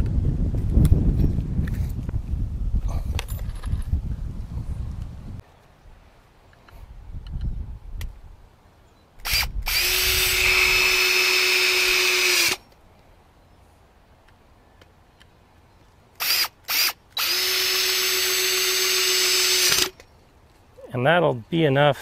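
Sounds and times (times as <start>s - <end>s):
power drill driving screws: 9.2s - 12.6s, 16.2s - 20.0s.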